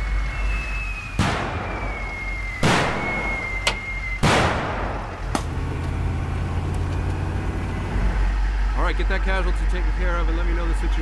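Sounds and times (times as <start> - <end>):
vehicle engine running: 0.0 - 11.0
sharp gunshots: 1.2 - 1.8, 2.6 - 3.5, 4.2 - 5.1
heavy explosions: 1.2 - 3.6.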